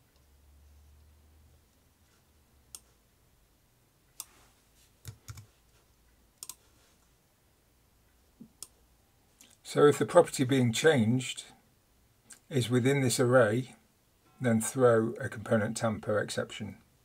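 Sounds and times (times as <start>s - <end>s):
faint low hum: 0.0s - 17.0s
mouse and keyboard clicks: 6.4s - 6.6s.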